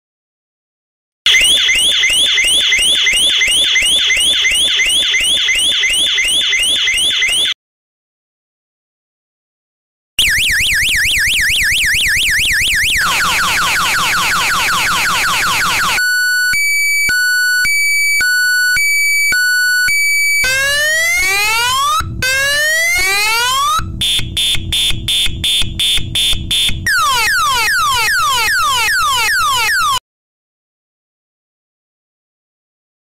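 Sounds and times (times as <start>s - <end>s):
electronic siren cycling tones: 1.3s - 7.6s, 10.2s - 30.0s.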